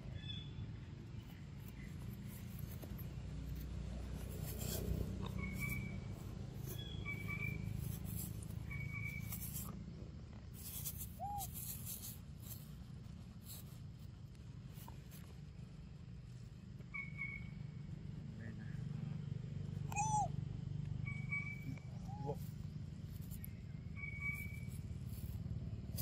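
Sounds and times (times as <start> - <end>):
rustling and scraping: 1.1 - 15.6, 21.8 - 26.0
rising then falling call: 19.9 - 20.4.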